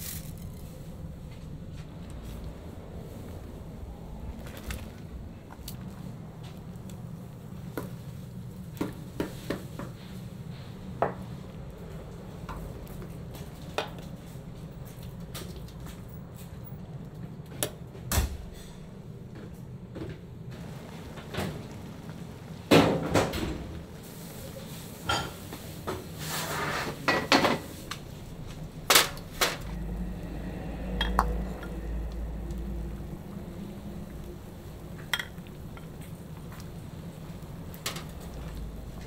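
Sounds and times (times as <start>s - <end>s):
metal pots and utensils clattering: 26.2s - 27.8s
low hum: 27.8s - 39.0s.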